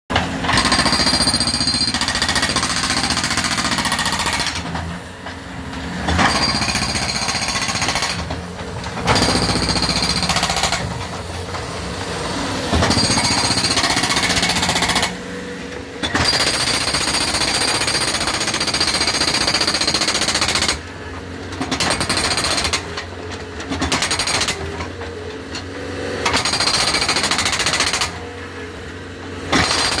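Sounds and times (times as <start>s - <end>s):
diesel engine running: 0.1s - 18.4s
hydraulic breaker hammering concrete: 0.1s - 25.6s, 26.2s - 30.0s.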